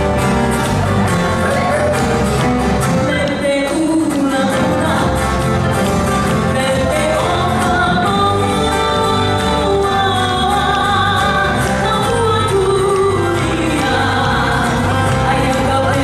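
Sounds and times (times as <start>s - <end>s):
strummed guitars: 0.0s - 16.0s
person singing: 2.9s - 16.0s
pulsing bass line: 5.2s - 16.0s.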